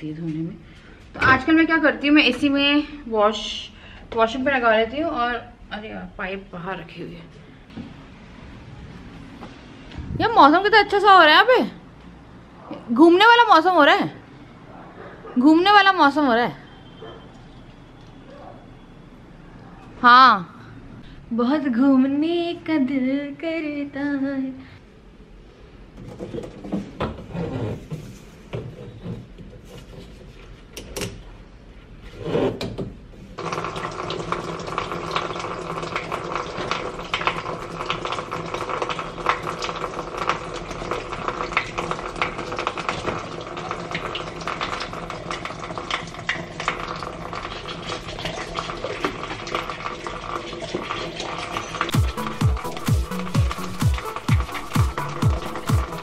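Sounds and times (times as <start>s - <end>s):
tap water filling container: 33.4s - 56.0s.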